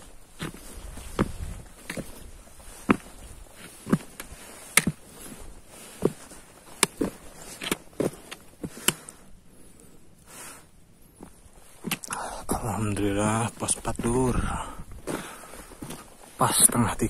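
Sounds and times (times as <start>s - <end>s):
footsteps on rocky trail: 0.0s - 9.4s, 10.3s - 17.0s.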